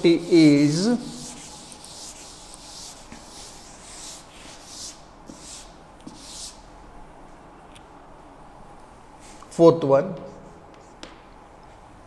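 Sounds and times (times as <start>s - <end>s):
duster wiping a blackboard: 0.0s - 6.6s.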